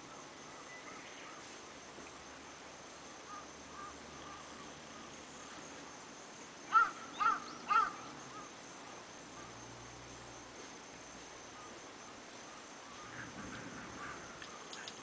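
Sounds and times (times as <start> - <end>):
high insect drone: 0.0 - 15.0
crow cawing: 6.7 - 8.0, 13.0 - 14.4.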